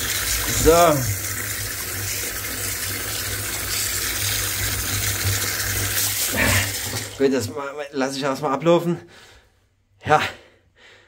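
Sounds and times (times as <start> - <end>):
tap water running into bathtub: 0.0 - 7.7.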